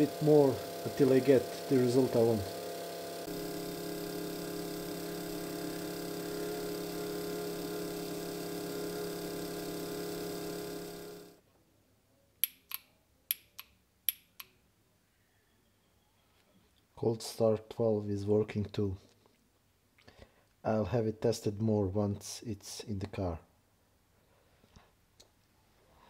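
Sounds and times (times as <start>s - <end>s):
electric motor humming: 0.0s - 11.4s
solenoid clicking: 12.4s - 14.5s.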